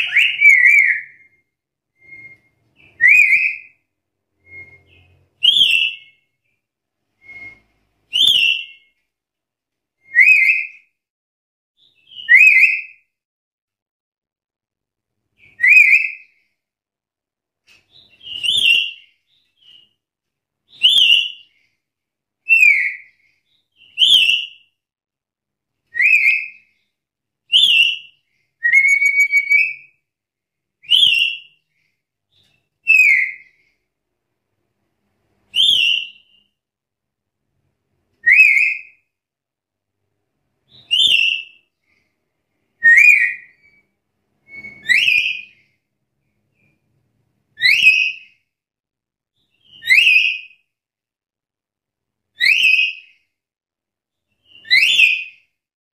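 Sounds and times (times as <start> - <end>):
parrot whistled calls: 0.0 - 1.4, 2.0 - 3.8, 4.4 - 6.2, 7.2 - 8.9, 10.0 - 10.8, 12.0 - 13.0, 15.4 - 16.3, 23.8 - 24.6, 25.9 - 26.6, 27.5 - 29.9, 30.8 - 31.5, 32.8 - 33.5, 35.5 - 36.5, 38.2 - 39.0, 40.7 - 41.6, 42.8 - 45.7, 47.6 - 48.4, 49.6 - 50.6, 52.4 - 53.2, 54.4 - 55.4.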